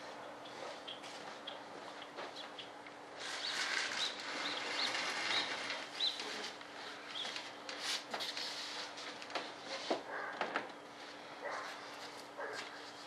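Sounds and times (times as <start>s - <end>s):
rustling and light knocks: 5.3s - 13.0s.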